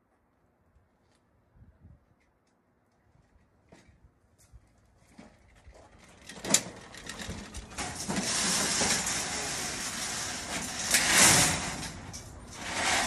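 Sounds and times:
wheels scraping over metal mesh: 0:05.1 - 0:13.0.

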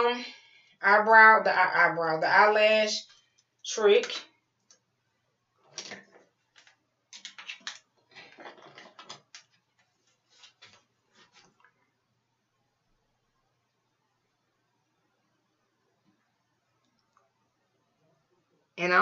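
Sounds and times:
makeup tools clicking and rattling: 0:05.8 - 0:09.5.

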